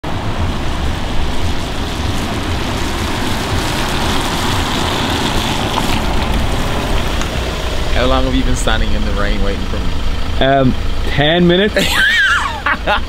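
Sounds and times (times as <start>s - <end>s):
deep rumble: 0.0s - 12.0s
car driving on wet road: 0.0s - 13.0s
steady rain: 0.1s - 9.0s.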